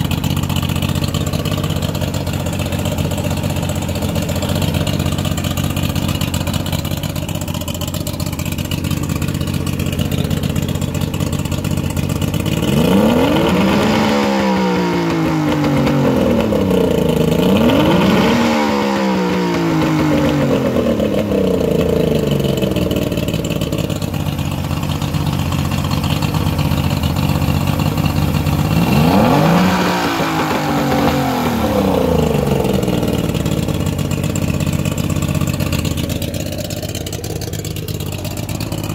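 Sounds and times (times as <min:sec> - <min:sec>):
outboard motor idling and revving: 0:00.0 - 0:38.9.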